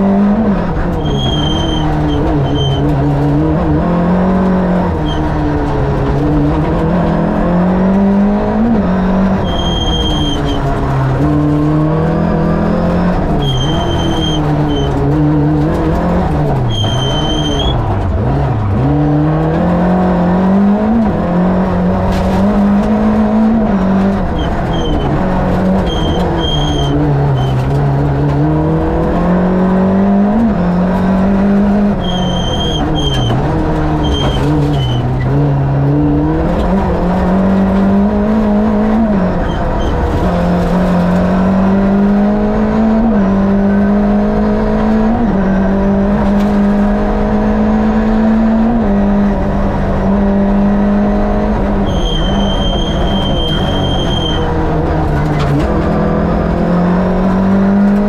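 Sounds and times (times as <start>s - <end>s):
rally car engine revving: 0.0s - 58.0s
brief high squeals: 1.0s - 2.8s, 16.7s - 17.8s, 51.9s - 54.5s.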